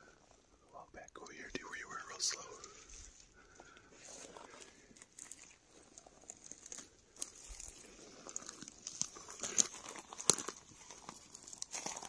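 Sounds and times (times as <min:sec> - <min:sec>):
footsteps crunching on dry forest floor: 0:02.4 - 0:12.0.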